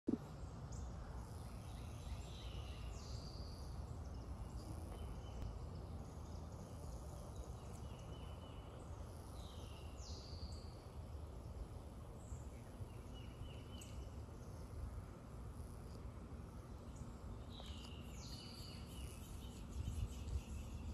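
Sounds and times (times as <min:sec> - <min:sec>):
songbird whistled calls and trills: 0:16.9 - 0:20.9.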